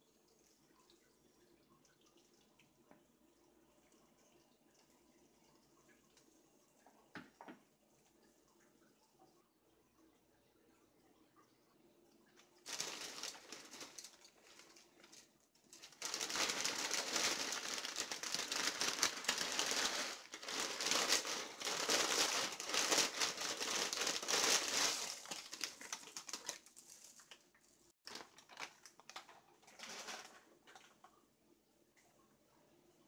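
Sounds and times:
dry noodles crackling: 12.6s - 30.2s.

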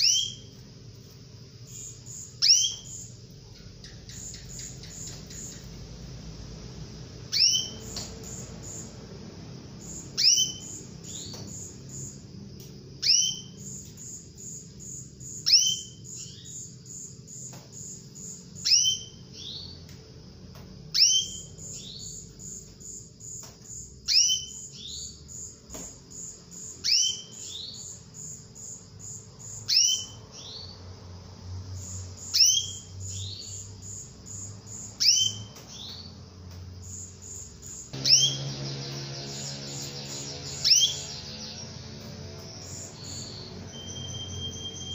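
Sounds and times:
canary call notes: 0.0s - 0.6s, 1.7s - 6.0s, 7.3s - 8.9s, 9.8s - 12.2s, 17.4s - 19.8s, 20.9s - 23.5s, 29.4s - 30.8s, 31.8s - 36.1s, 36.9s - 44.9s.

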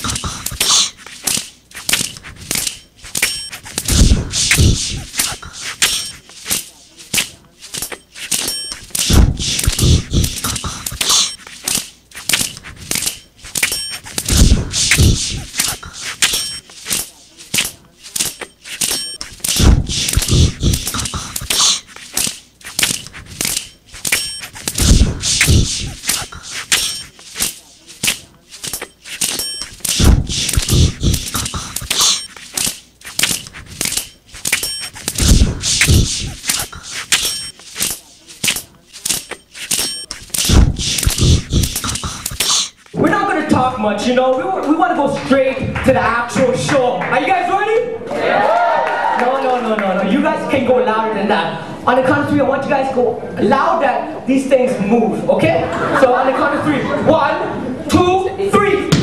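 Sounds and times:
buzzy electronic tones: 0.0s - 1.0s, 3.1s - 6.4s, 12.8s - 16.8s, 23.0s - 27.5s, 28.6s - 32.4s, 33.3s - 42.8s
sharp percussive hits: 0.0s - 6.2s, 8.4s - 11.4s, 18.8s - 32.3s, 33.2s - 42.6s
heavy low thuds: 3.8s - 5.1s, 9.1s - 10.7s, 14.2s - 15.6s, 19.6s - 21.4s, 24.8s - 26.0s, 30.0s - 31.8s, 35.2s - 36.4s, 40.5s - 42.2s
heavy bass booms: 24.8s - 25.8s.

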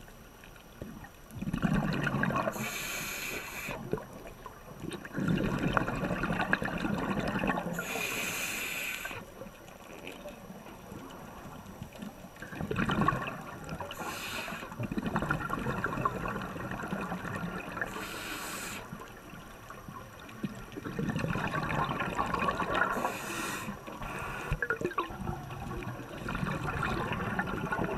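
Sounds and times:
exhaled bubbles gurgling underwater: 0.0s - 27.9s
scuba regulator hiss: 2.5s - 3.8s, 7.8s - 9.2s, 14.0s - 14.7s, 17.9s - 18.9s, 23.0s - 24.6s.

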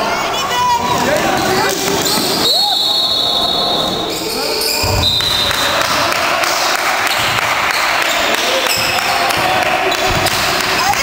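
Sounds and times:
voices of players and spectators: 0.0s - 11.0s
basketball bouncing on court: 7.0s - 11.0s.

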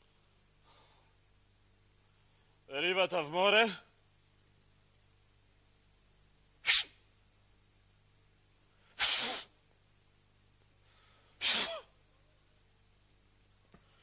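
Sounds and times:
man blowing puffs of breath: 8.9s - 9.6s, 10.8s - 11.8s.

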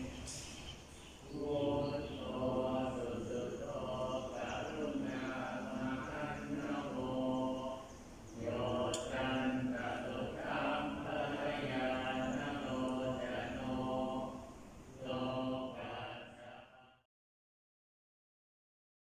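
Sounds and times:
male voices chanting: 1.2s - 17.0s.

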